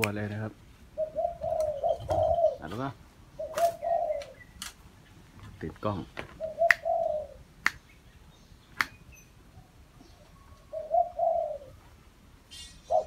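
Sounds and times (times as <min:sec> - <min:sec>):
dove cooing: 0:00.9 - 0:04.6, 0:06.1 - 0:07.6, 0:09.5 - 0:11.9, 0:12.5 - 0:13.0
sharp clicks: 0:08.8 - 0:09.0.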